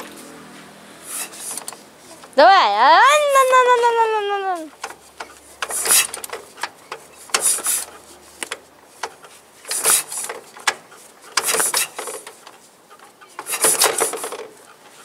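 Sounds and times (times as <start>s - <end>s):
motorcycle kick-start clatter: 1.0s - 2.4s, 4.7s - 15.0s.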